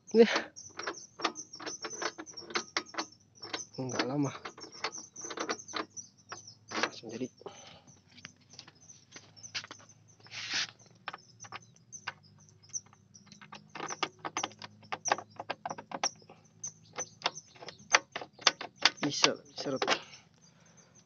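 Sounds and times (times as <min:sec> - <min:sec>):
key clicking and scraping in lock: 0:00.4 - 0:07.1, 0:10.5 - 0:20.2.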